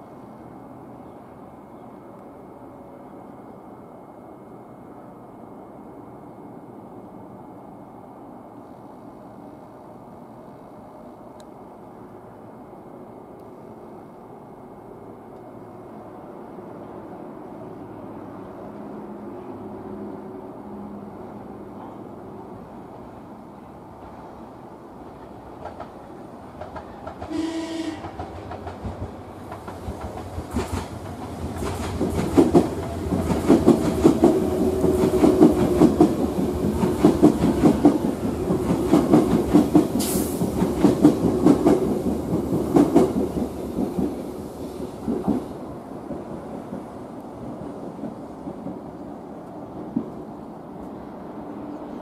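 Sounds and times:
train wheels clacking over rail joints: 25.2s - 44.2s
train horn blast: 27.3s - 28.2s.

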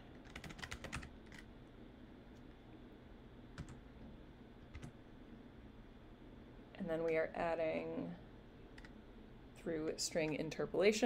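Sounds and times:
typing on computer keyboard: 0.1s - 1.5s, 4.7s - 4.9s.

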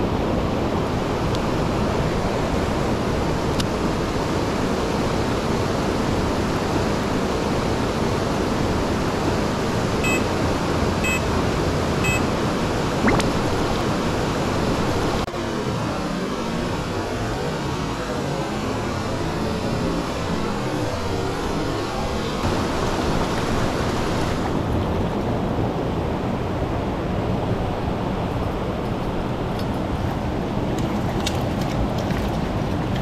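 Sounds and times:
short beeps: 10.0s - 10.3s, 11.0s - 11.2s, 12.0s - 12.3s.

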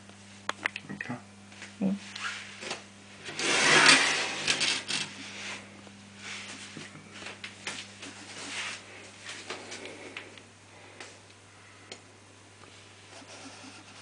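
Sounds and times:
steady low hum: 0.0s - 14.0s
glass door scraping along track: 3.2s - 5.2s.

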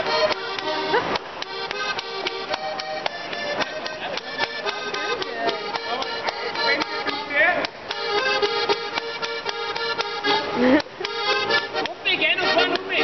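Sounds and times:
foot stamps: 0.0s - 12.0s
folk dance music: 0.0s - 13.0s
hand slaps on thighs and shoes: 0.2s - 5.1s.

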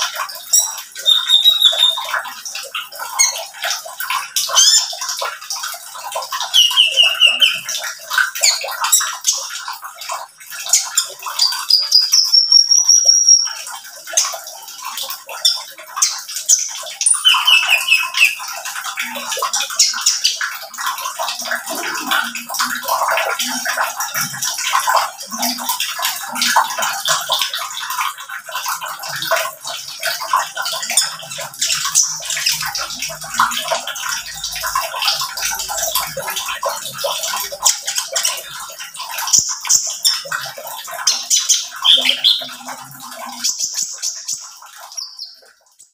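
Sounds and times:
small bird singing: 0.5s - 2.1s, 6.5s - 7.7s, 11.4s - 13.6s, 17.0s - 18.5s, 41.8s - 42.6s.

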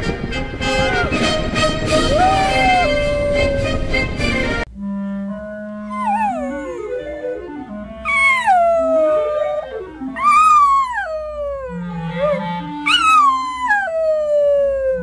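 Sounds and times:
dog howling: 2.0s - 3.9s, 5.9s - 7.1s, 8.0s - 15.0s.

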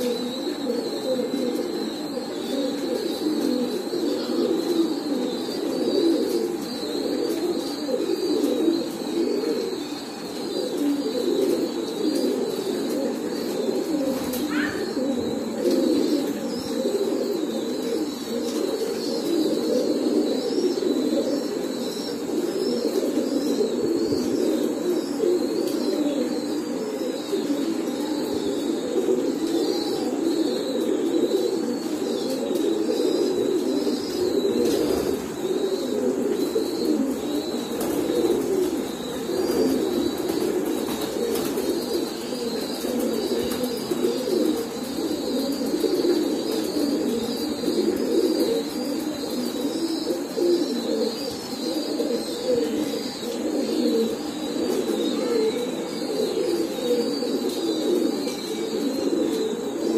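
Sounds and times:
faint high chirping: 0.0s - 59.9s
pigeons cooing: 0.0s - 59.9s.

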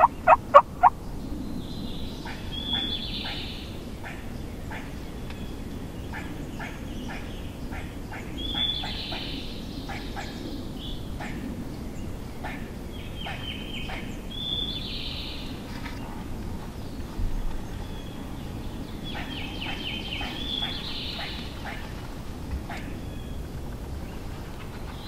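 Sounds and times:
bird whistling: 0.0s - 0.9s
turkeys clucking and yelping: 0.0s - 1.0s.

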